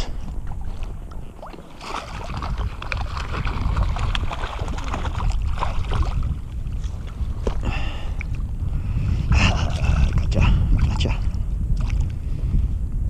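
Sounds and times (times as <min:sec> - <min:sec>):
wind rumble on microphone: 0:00.0 - 0:13.0
fish splashing in water: 0:00.3 - 0:06.5.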